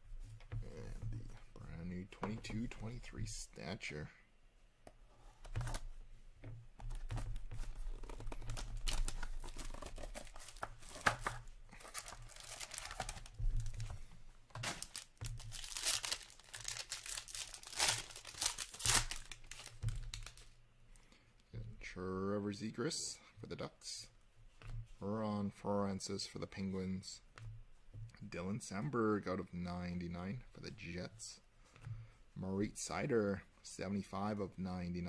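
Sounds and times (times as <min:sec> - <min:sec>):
shrink wrap tearing and crinkling: 0:07.9 - 0:13.9, 0:14.6 - 0:20.5.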